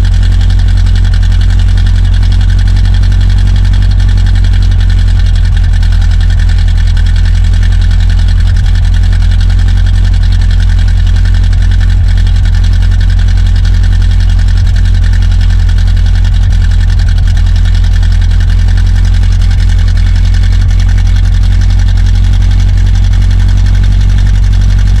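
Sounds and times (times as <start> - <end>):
truck engine idling: 0.0 - 25.0.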